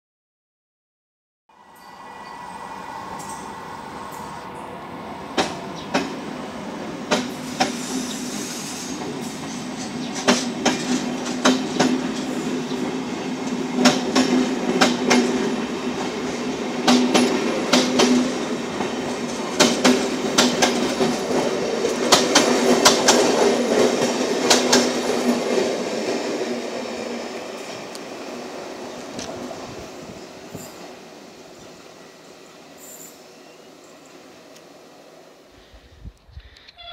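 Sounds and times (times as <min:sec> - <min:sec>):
train passing with steady hum: 0:01.5 - 0:36.2
train wheels clicking over rail joints: 0:07.0 - 0:12.8, 0:13.4 - 0:26.3.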